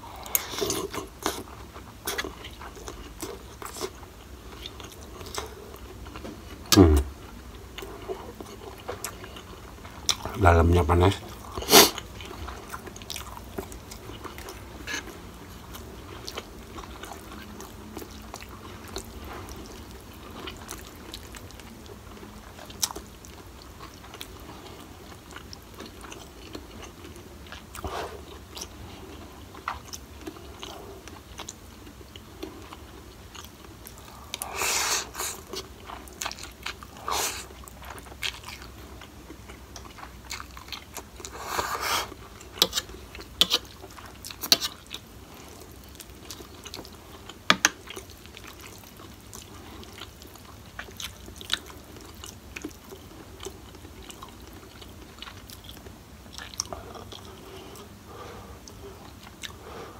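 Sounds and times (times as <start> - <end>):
person chewing: 0.0 - 10.4, 11.3 - 59.9
slurping noodles: 34.4 - 35.5, 41.3 - 42.2.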